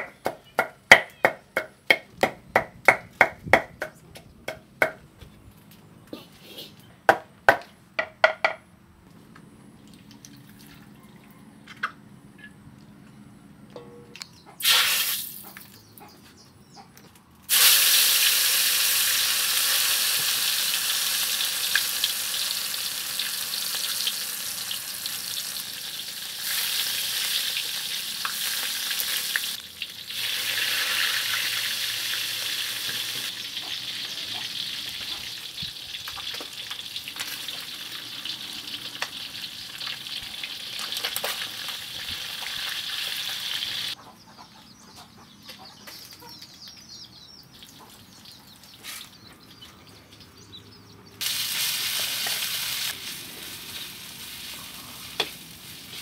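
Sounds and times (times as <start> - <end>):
fish sizzling in hot oil: 14.6 - 15.4, 17.5 - 44.0, 51.2 - 56.0.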